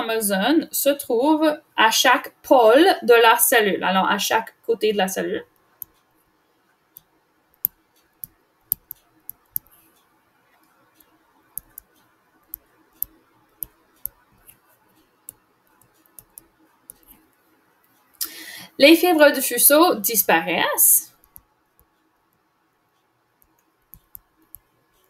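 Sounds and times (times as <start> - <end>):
faint background hum: 0.0 - 25.0
digital pen clicks and taps: 5.8 - 6.1, 7.0 - 10.0, 10.6 - 17.3, 21.1 - 22.4, 23.4 - 25.0.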